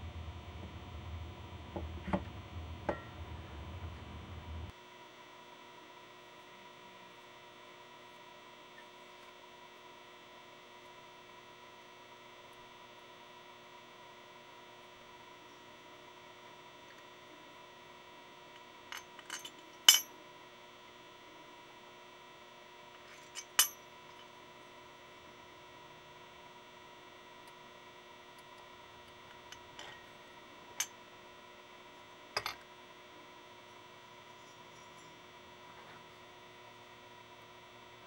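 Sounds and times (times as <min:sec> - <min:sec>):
faint steady hum: 0:00.0 - 0:38.0
metallic clinks and taps: 0:18.9 - 0:20.1, 0:32.4 - 0:32.6.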